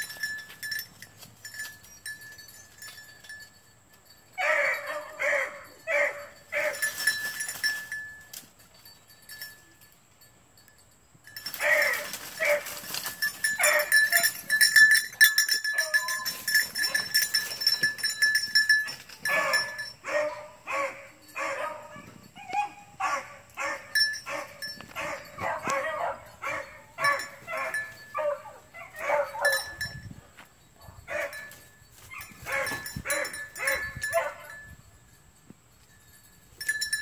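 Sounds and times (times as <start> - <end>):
puppy barking: 4.4 - 6.8, 19.3 - 29.6, 31.1 - 31.4, 32.2 - 34.6.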